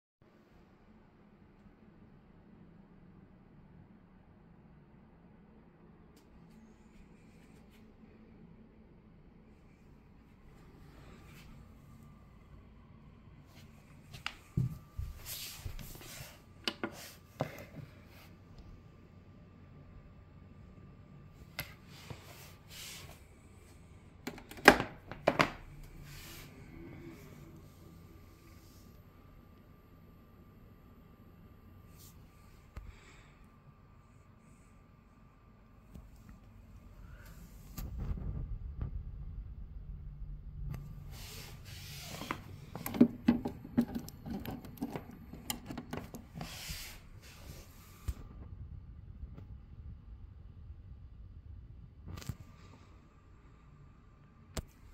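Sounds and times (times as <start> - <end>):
clicks and knocks of cable: 24.2 - 25.6, 42.3 - 46.3.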